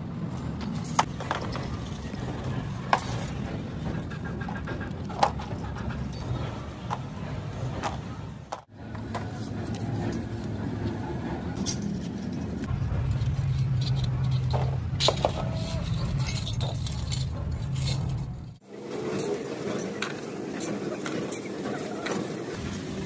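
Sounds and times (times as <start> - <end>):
steady low rumble: 1.2 - 18.6
light metallic clinks: 11.6 - 18.6.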